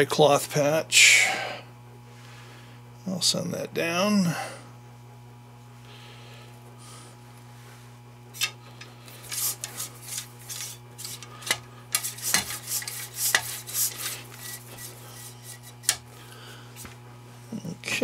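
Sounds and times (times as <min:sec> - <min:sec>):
cleaning rod scraping in barrel: 0:08.4 - 0:16.0.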